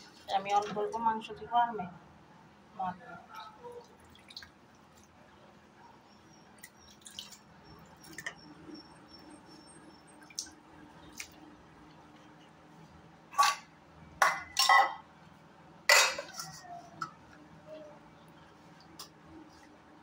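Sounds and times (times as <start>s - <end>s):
wet drips: 3.3s - 5.2s, 6.5s - 8.5s, 10.0s - 12.0s.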